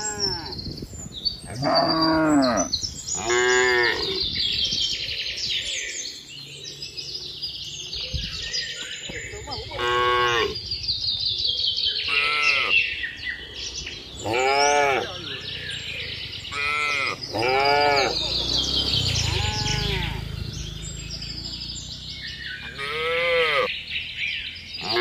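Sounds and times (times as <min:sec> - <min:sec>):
birds chirping: 0:00.0 - 0:25.0
cattle mooing: 0:01.5 - 0:04.2, 0:09.6 - 0:10.6, 0:14.2 - 0:15.3, 0:16.5 - 0:18.5, 0:19.1 - 0:20.4, 0:22.7 - 0:23.7.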